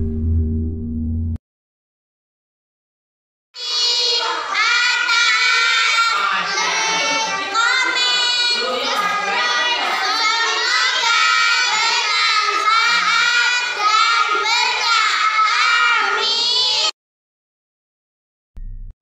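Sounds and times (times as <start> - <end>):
girls singing together: 3.6 - 16.9.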